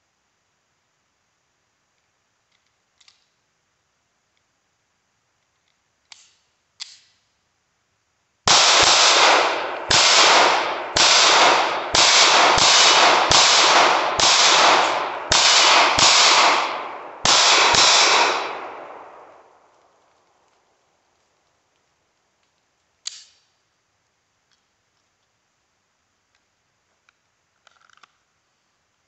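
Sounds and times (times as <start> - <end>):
small clicks: 1.9 - 3.5, 5.3 - 7.4, 19.7 - 23.7, 26.2 - 28.3
handgun shots echoing: 8.5 - 19.6.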